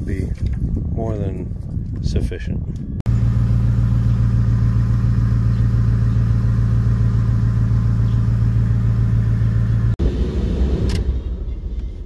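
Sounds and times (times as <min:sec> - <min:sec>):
engine droning steadily: 0:03.1 - 0:12.0.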